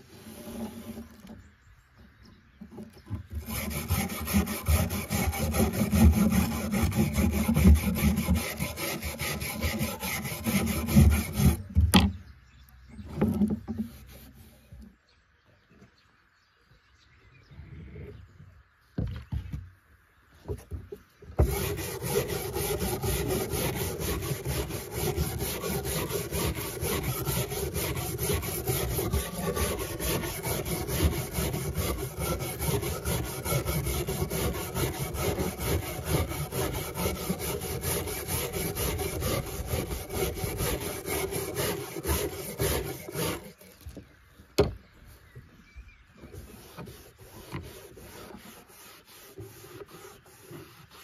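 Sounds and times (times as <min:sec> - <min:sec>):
wire brush scrubbing metal: 0:03.4 - 0:11.7, 0:21.4 - 0:43.8, 0:46.4 - 0:51.0.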